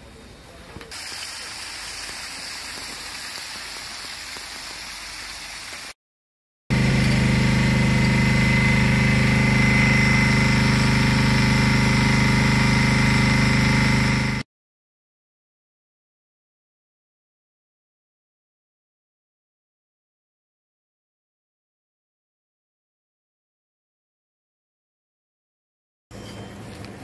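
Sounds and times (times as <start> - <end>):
motor droning with high whine: 6.7 - 14.4.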